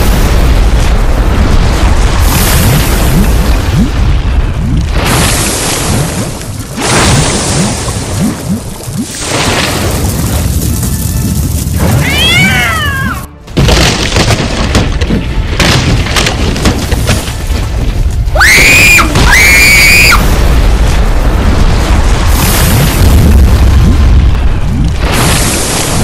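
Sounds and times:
low rumble with booms and crashes: 0.0 - 26.0.

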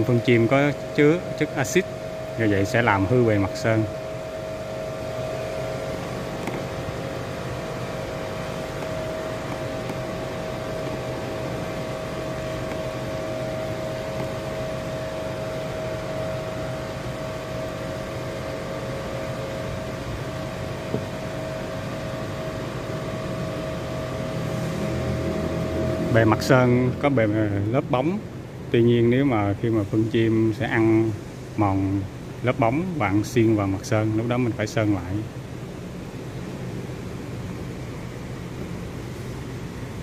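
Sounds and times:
steady mechanical hum: 0.0 - 40.0.

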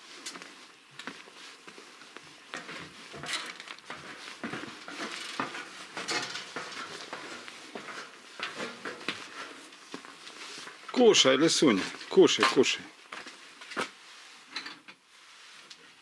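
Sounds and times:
footsteps on wooden stairs: 0.3 - 10.2.

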